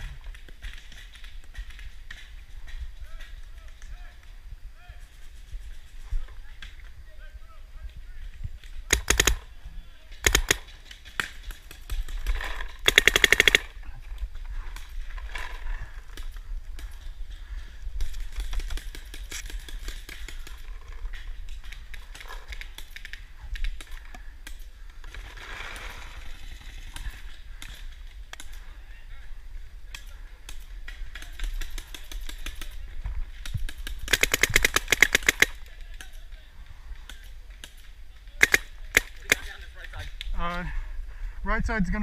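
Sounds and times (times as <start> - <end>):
rapid string of paintball shots: 8.6 - 28.7, 29.9 - 40.0.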